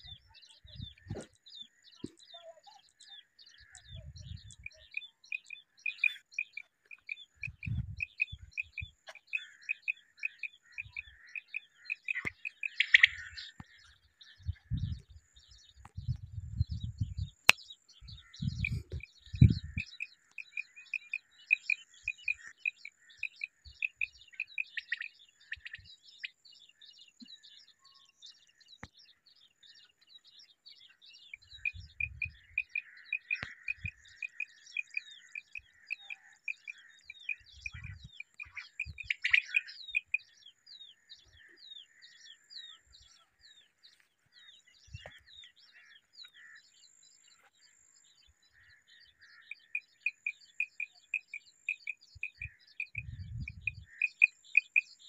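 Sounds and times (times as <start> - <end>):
quail chirping: 3.6 - 15.0, 18.2 - 26.4, 31.3 - 40.4, 45.0 - 46.6, 48.6 - 55.0.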